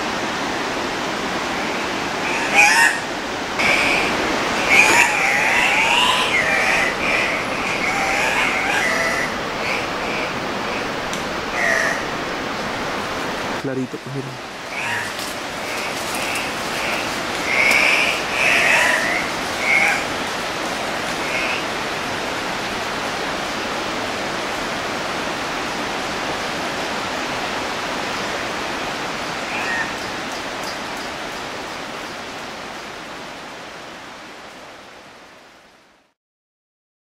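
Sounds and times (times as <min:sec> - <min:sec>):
steady rushing noise: 0:00.0 - 0:31.7
bird giving harsh squawks: 0:14.7 - 0:15.2, 0:16.2 - 0:20.1.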